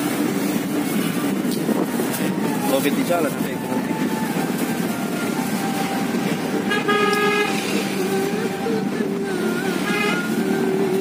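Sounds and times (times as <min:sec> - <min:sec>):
car engine and road noise: 0:00.0 - 0:11.0
car horn tooting: 0:06.6 - 0:07.8, 0:09.8 - 0:10.4.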